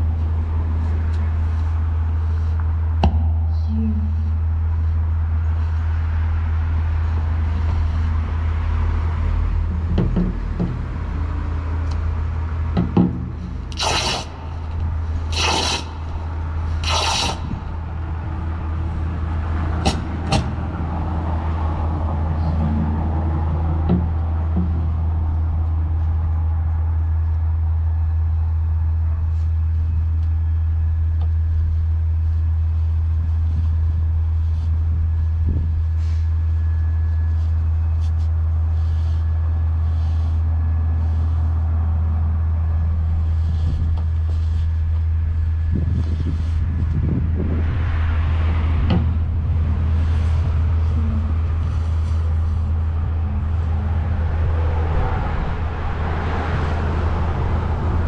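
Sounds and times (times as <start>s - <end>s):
loud steady low hum: 0.0s - 58.0s
scratchy rustles: 43.1s - 47.0s.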